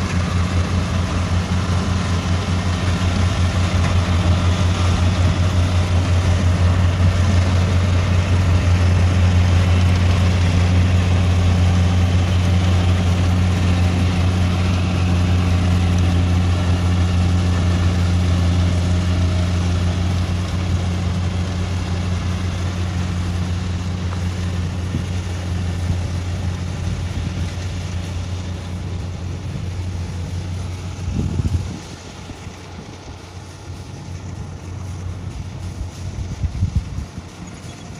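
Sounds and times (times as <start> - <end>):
combine harvester diesel engine drone: 0.0 - 37.9.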